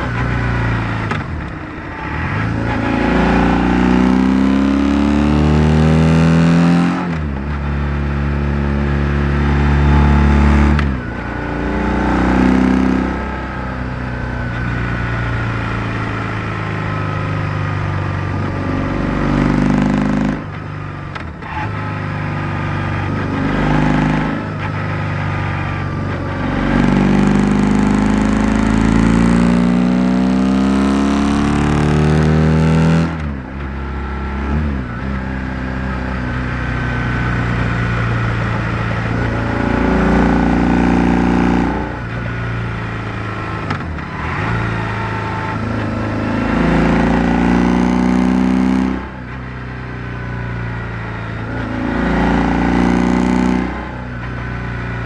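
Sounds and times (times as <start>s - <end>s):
motorcycle engine accelerating: 0.0s - 55.0s.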